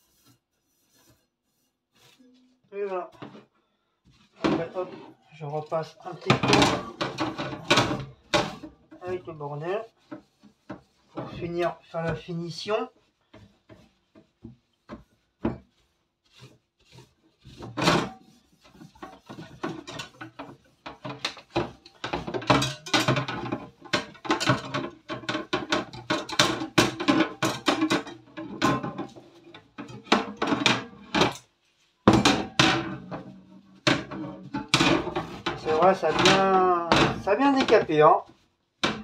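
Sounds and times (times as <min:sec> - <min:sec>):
sponge scrubbing metal rack: 0:04.2 - 0:39.0
metal rack knocking and rattling: 0:06.1 - 0:08.7, 0:19.0 - 0:31.4, 0:32.1 - 0:37.9.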